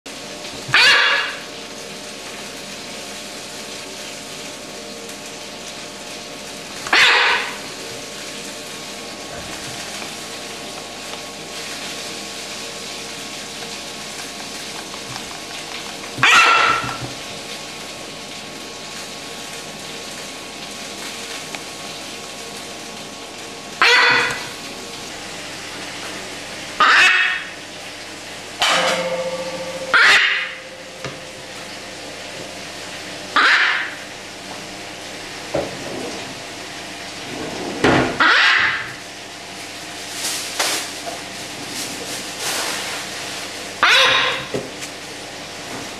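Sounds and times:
macaw squawking: 0:00.8 - 0:01.4, 0:06.9 - 0:07.6, 0:16.2 - 0:17.0, 0:23.8 - 0:24.5, 0:26.8 - 0:27.6, 0:29.6 - 0:30.8, 0:33.4 - 0:34.0, 0:38.2 - 0:38.9, 0:43.8 - 0:44.5.

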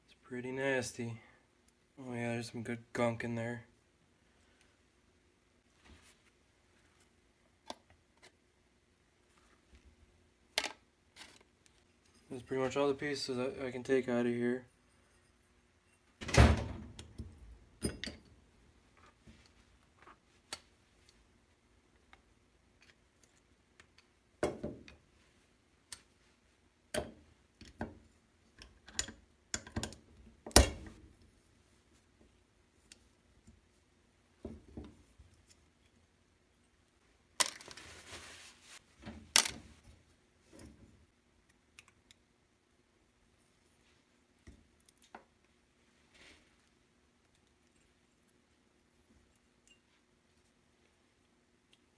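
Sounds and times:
rustling scrape: 0:37.6 - 0:38.9.

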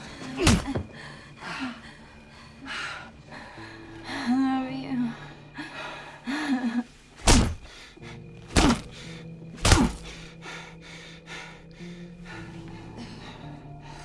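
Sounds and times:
heavy punch thuds: 0:07.2 - 0:07.7, 0:08.5 - 0:09.0, 0:09.6 - 0:10.1.

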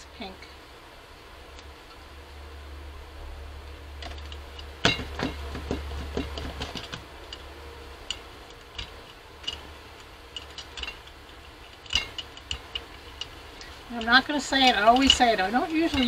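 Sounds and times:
brayer rolling paint ticking: 0:04.0 - 0:16.0.

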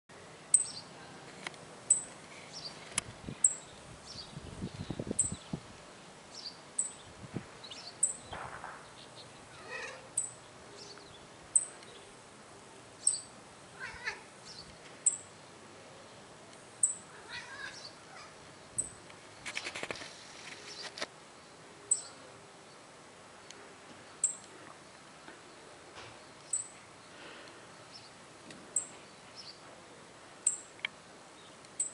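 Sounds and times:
rustle: 0:00.1 - 0:31.9
bird chirping: 0:00.5 - 0:00.9, 0:06.3 - 0:12.1, 0:13.0 - 0:13.3, 0:21.9 - 0:22.2, 0:24.2 - 0:25.0, 0:26.2 - 0:26.8.

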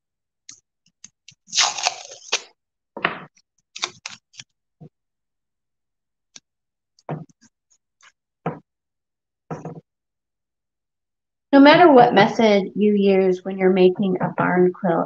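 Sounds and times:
masking tape rustling and crackling: 0:03.7 - 0:04.6.

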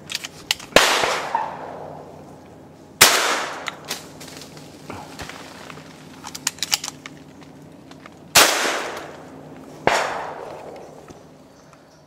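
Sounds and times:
shotgun shots echoing: 0:00.7 - 0:02.1, 0:03.0 - 0:03.8, 0:08.3 - 0:09.2, 0:09.8 - 0:10.8.

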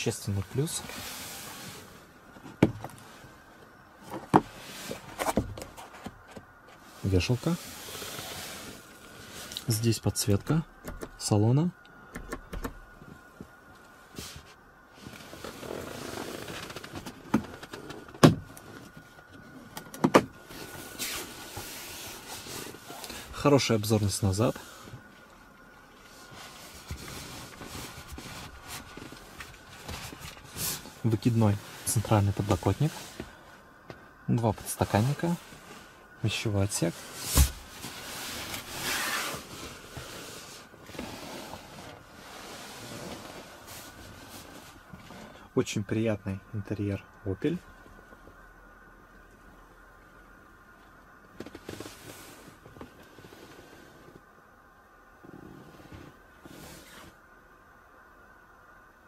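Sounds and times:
soft rustle: 0:00.0 - 0:10.4, 0:13.1 - 0:19.8, 0:20.4 - 0:45.5, 0:51.3 - 0:54.4, 0:55.2 - 0:57.3.

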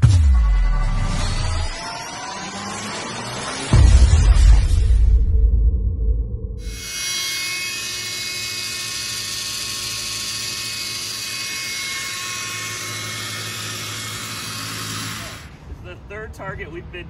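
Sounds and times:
small electric motor whine: 0:00.8 - 0:03.8, 0:06.6 - 0:15.6.

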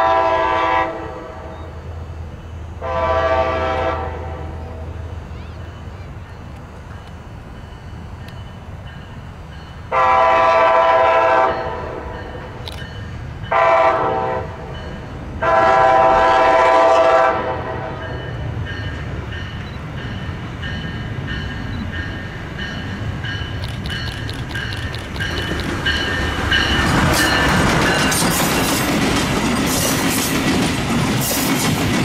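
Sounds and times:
locomotive air horn blasts: 0:00.0 - 0:01.5, 0:02.8 - 0:04.8, 0:09.9 - 0:12.1, 0:13.5 - 0:14.7, 0:15.4 - 0:18.1
train rumble: 0:00.0 - 0:32.0.

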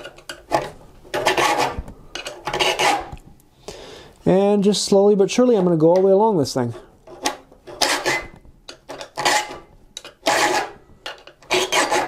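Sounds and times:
file rasping on saw teeth: 0:01.2 - 0:01.8, 0:02.4 - 0:03.2, 0:07.2 - 0:08.3, 0:09.2 - 0:09.6, 0:10.2 - 0:10.8, 0:11.4 - 0:12.0.

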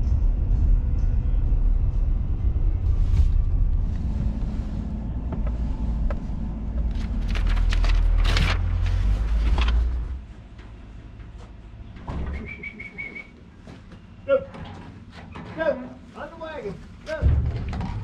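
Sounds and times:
truck engine and road rumble: 0:00.0 - 0:18.0
trailer rattles and knocks: 0:14.4 - 0:18.0.

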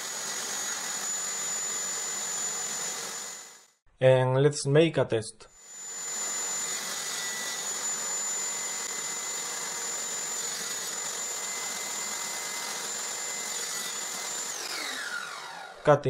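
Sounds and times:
saw blade spinning down: 0:00.0 - 0:03.7, 0:05.6 - 0:15.9
table saw whining: 0:00.0 - 0:03.8, 0:05.6 - 0:15.9.

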